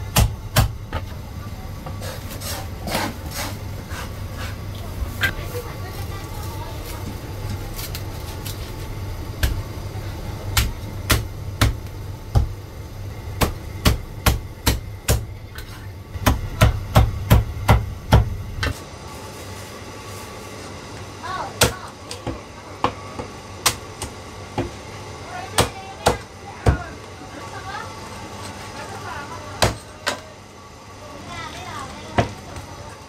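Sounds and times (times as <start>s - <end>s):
steady low hum: 0.0s - 33.0s
cleaver chopping on wooden block: 10.6s - 11.8s.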